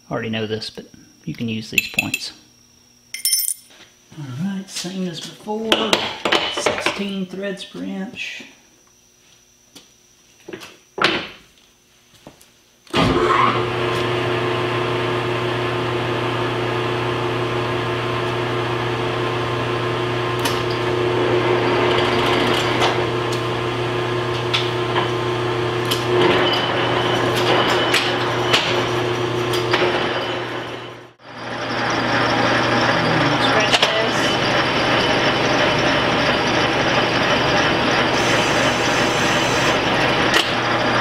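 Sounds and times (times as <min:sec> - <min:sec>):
metal lathe humming: 0:14.6 - 0:41.0.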